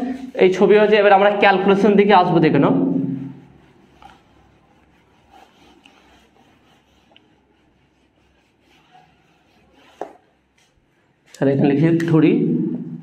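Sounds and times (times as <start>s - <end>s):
pen scratching on paper: 2.9s - 10.7s.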